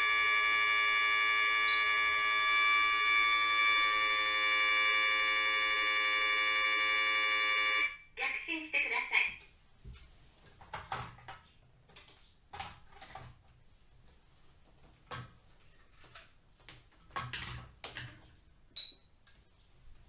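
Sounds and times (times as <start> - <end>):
high beep: 18.8 - 19.1.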